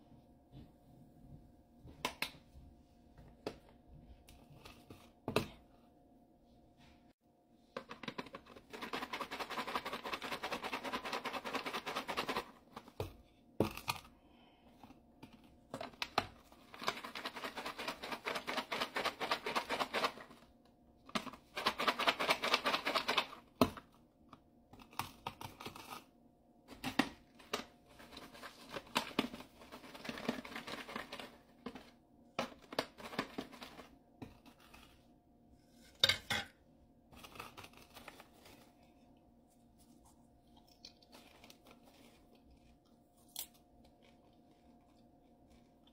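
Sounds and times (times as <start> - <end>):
popcorn rattling in paper boxes: 7.8 - 13.0, 15.8 - 20.5, 21.1 - 23.6, 26.7 - 34.5.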